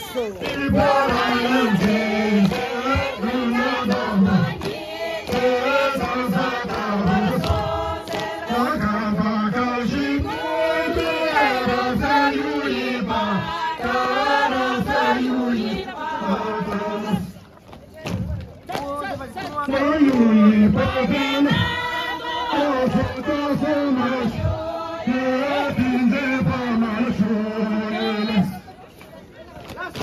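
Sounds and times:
group singing in unison: 0.0 - 17.4, 19.1 - 28.6.

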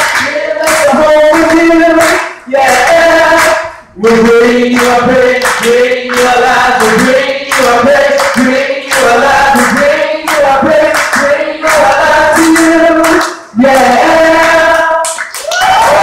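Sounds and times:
applause: 0.0 - 2.3, 4.8 - 6.3, 7.5 - 16.0
people singing together: 0.0 - 15.3.

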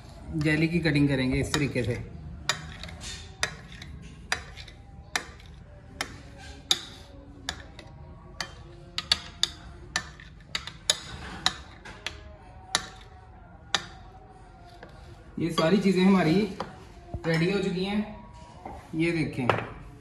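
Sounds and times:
knife chopping and tapping plate: 2.5 - 14.1.

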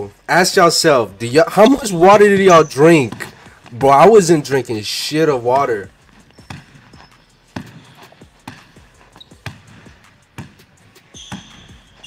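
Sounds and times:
basketball dribbled on hardwood: 1.6 - 4.4, 5.5 - 12.0.

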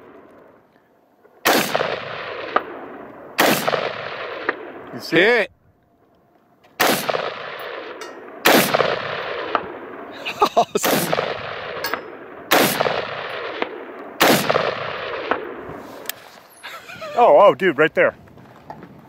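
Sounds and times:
rifle shots with echo: 1.3 - 5.4, 6.8 - 15.8.

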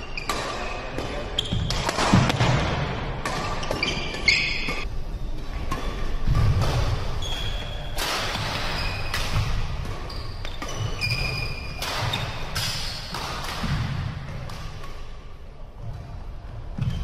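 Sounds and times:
rackets hitting shuttlecocks: 0.2 - 4.9, 5.6 - 15.1
shoes squeaking on wooden floor: 3.5 - 4.9, 9.9 - 12.5.

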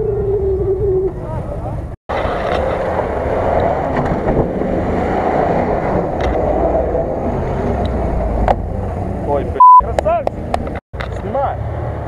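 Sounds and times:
wind rushing over microphone: 0.0 - 9.4.

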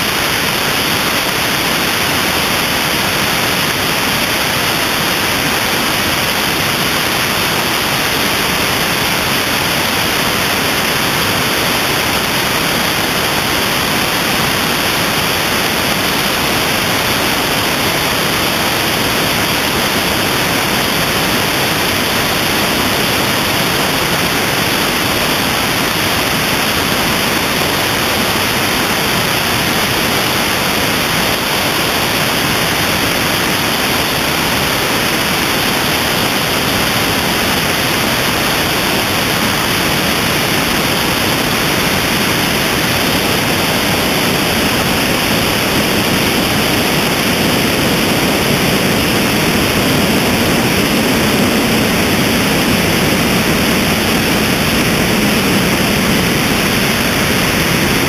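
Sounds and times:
airflow rushing over camera: 39.1 - 58.0.

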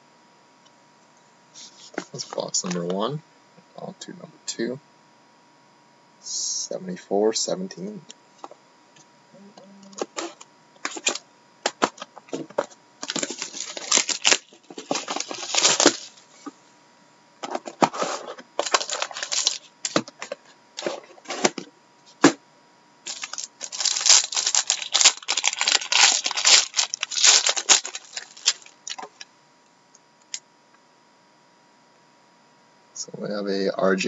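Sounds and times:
wrappers tearing and crinkling: 13.0 - 16.2, 18.6 - 20.1, 23.0 - 29.2.

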